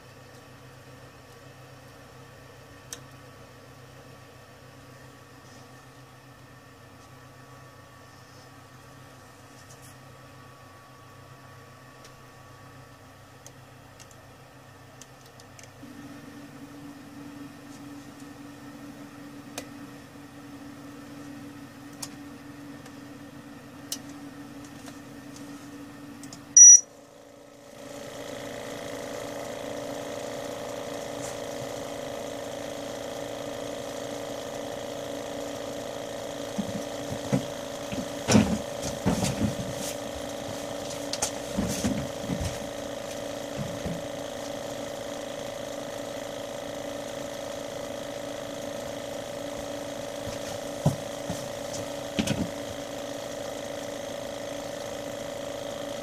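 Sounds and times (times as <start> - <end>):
rework station humming: 0.0 - 56.0
loud electronic beep: 26.6 - 26.8.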